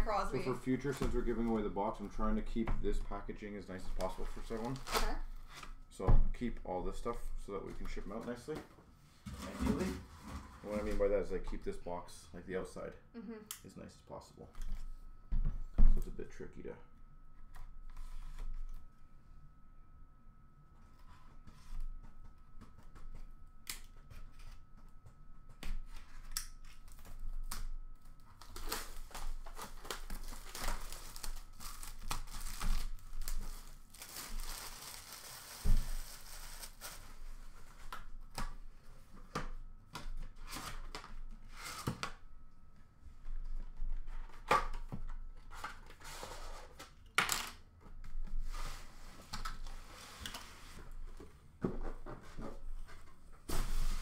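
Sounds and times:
cardboard and tape tearing: 0:04.4 - 0:05.6, 0:28.4 - 0:37.1.

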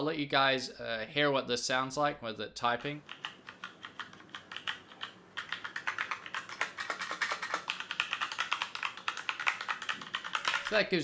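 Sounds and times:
mechanical keyboard typing: 0:03.0 - 0:10.8.

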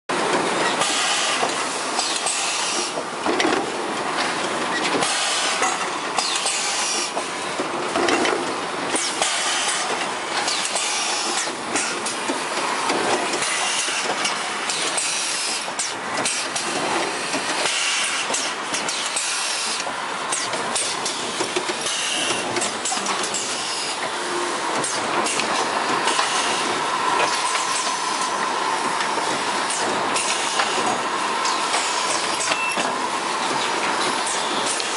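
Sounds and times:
machine clanks and knocks: 0:00.2 - 0:34.9
hissing machine noise: 0:08.6 - 0:34.9.

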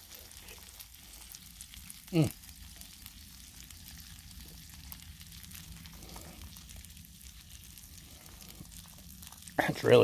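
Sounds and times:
fat spitting crackles: 0:00.0 - 0:02.7
patties sizzling on a griddle: 0:00.0 - 0:10.0.

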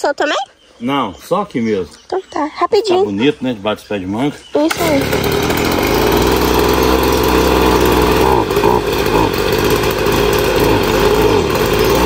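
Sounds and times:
leaf blower engine running: 0:04.6 - 0:12.0.

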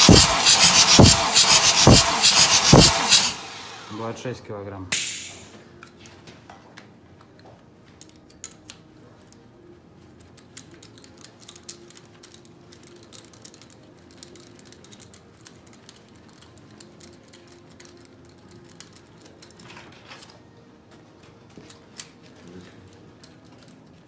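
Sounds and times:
ratchet wrench clicking: 0:00.0 - 0:03.4, 0:10.6 - 0:19.6.

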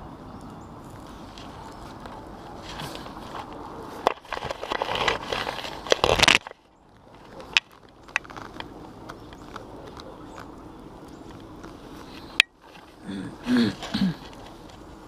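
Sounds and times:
rope scraping against concrete: 0:00.8 - 0:10.5.

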